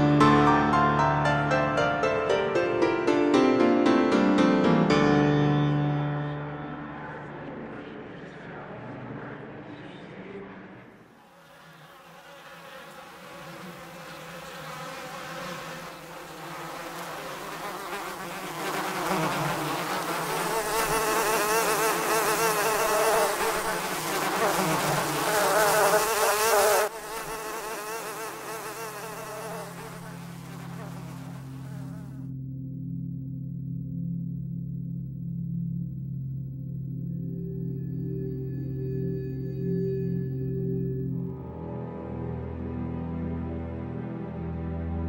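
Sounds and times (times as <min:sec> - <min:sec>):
flying insects buzzing: 0:11.1 - 0:32.3.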